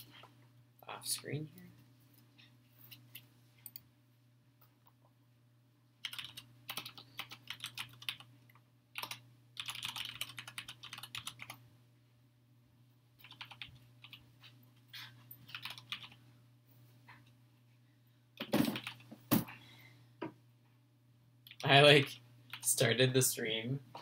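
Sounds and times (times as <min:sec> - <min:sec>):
typing on keyboard: 0:06.0 - 0:08.3, 0:09.0 - 0:11.6, 0:13.2 - 0:14.2, 0:15.5 - 0:16.2, 0:18.4 - 0:19.1.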